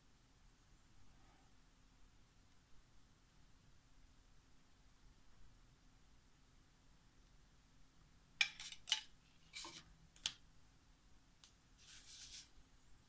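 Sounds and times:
hand brushing paper: 11.8 - 12.6.

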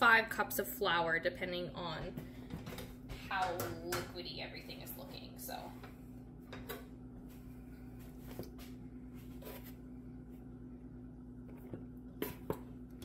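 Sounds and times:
steady low hum: 0.0 - 13.0
flour scooping scraping: 7.3 - 9.9.

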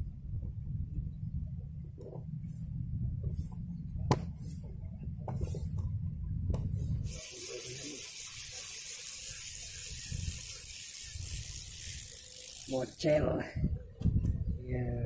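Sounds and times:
wind rumble on microphone: 0.0 - 7.2, 9.4 - 11.7, 13.1 - 15.0
steady hiss: 7.0 - 13.0.

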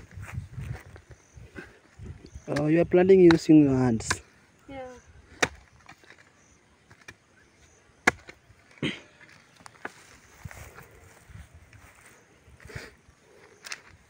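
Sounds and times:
hoe knocking soil: 5.3 - 6.2, 8.0 - 10.0.

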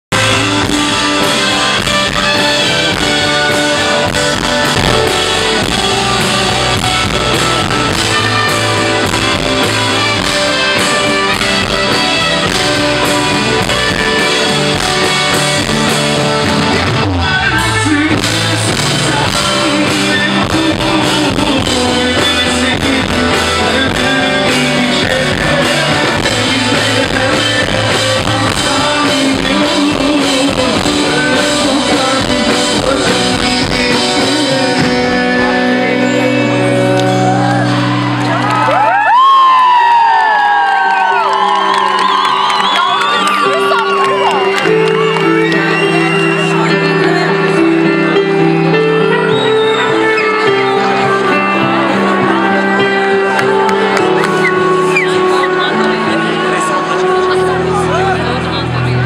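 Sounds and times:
live pop-rock band: 0.1 - 59.0
male lead vocal: 16.6 - 38.1.

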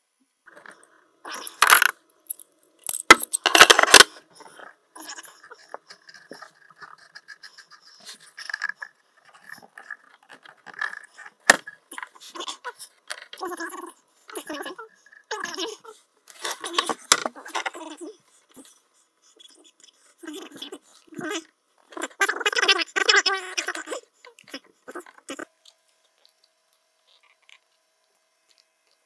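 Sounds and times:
metal tools clinking and clattering: 1.6 - 4.1.

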